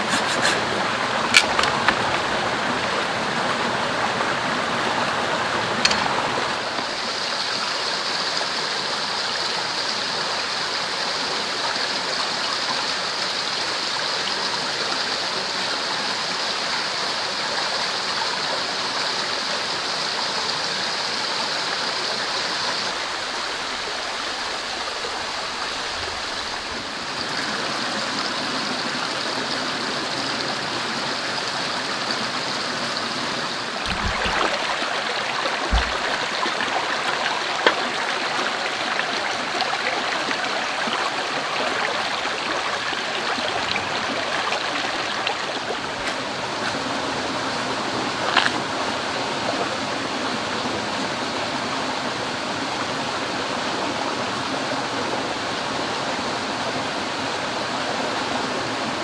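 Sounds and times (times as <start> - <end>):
stream rushing over rocks: 0.0 - 59.0
low thuds: 33.8 - 34.6, 35.7 - 36.2.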